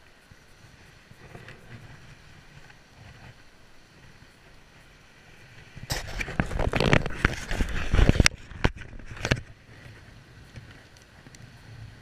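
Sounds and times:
camera handling clicks and scrapes: 0:05.9 - 0:09.5.

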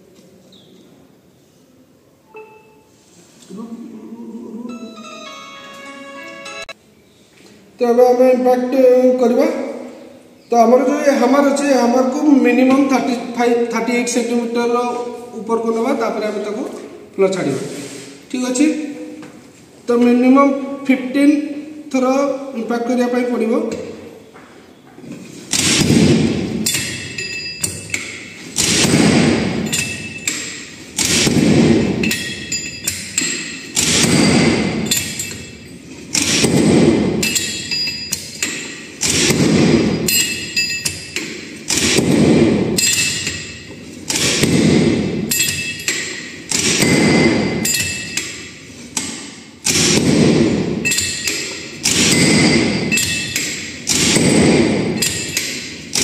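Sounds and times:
hammer clanking: 0:25.5 - 0:56.0
hammer thudding on metal: 0:36.2 - 0:56.0.

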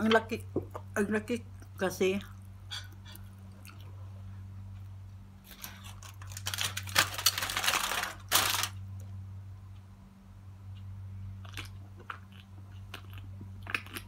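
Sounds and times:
steady low hum: 0:00.0 - 0:14.0
aluminium foil crinkling: 0:05.5 - 0:08.8.

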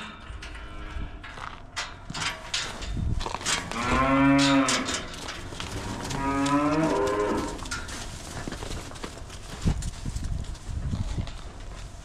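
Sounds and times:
cow mooing: 0:03.7 - 0:05.0, 0:05.8 - 0:07.7.

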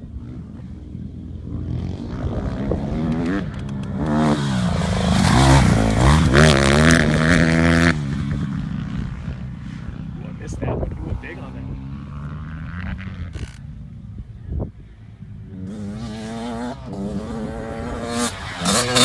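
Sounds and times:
dirt bike engine passing: 0:00.0 - 0:19.0.

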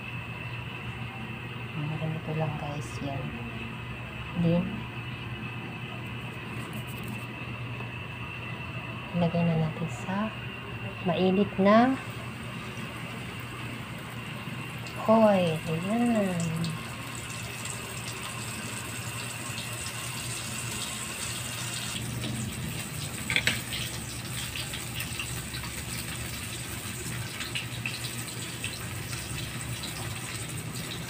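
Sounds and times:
fish sizzling in hot oil: 0:12.0 - 0:31.0.

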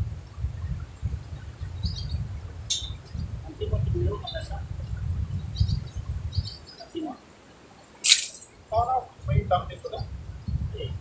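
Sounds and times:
wind buffeting microphone: 0:00.0 - 0:06.9, 0:08.0 - 0:11.0.

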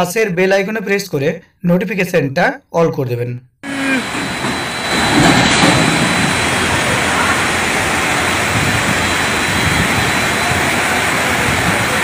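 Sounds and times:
floodwater rushing: 0:03.6 - 0:12.0
pouring rain: 0:03.6 - 0:12.0.

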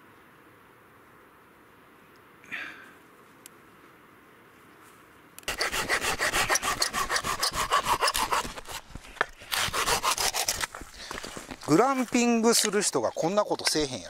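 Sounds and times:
hand saw cutting wood: 0:05.5 - 0:11.6.

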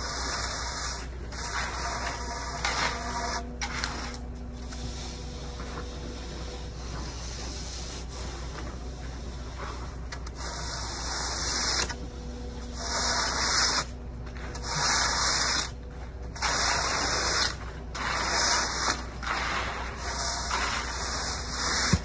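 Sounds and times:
screed bar scraping wet concrete: 0:00.0 - 0:04.2, 0:10.4 - 0:12.0, 0:12.8 - 0:13.9, 0:14.5 - 0:15.8, 0:16.4 - 0:22.0
steady low hum: 0:00.0 - 0:22.0.

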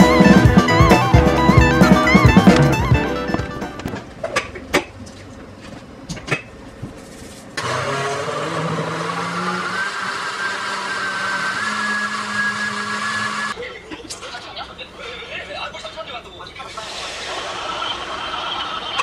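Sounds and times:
blender motor running: 0:07.6 - 0:13.6.

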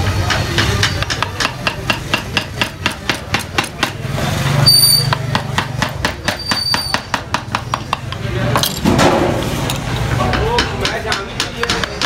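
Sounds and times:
wooden mallet tapping gouge: 0:00.2 - 0:04.0, 0:05.1 - 0:08.3, 0:10.3 - 0:12.0.

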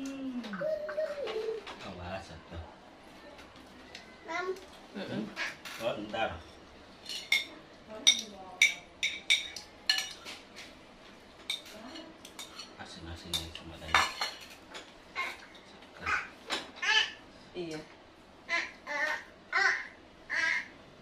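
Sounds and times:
spoons clinking on plates: 0:05.7 - 0:10.4, 0:11.4 - 0:15.7.

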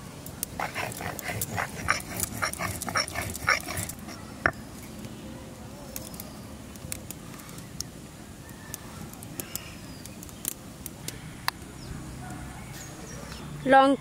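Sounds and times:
dog yapping: 0:00.6 - 0:04.2.

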